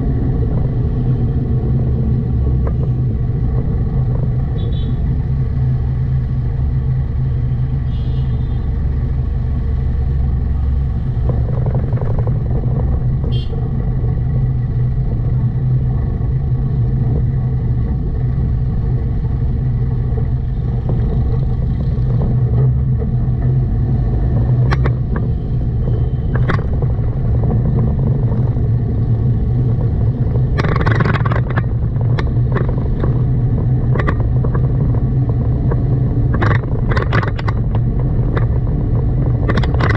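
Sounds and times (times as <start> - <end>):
sharp clicks and rattles: 0.0 - 7.2, 8.7 - 39.9
car engine and road noise: 0.0 - 39.9
car horn beeps: 7.9 - 8.7, 13.3 - 13.6.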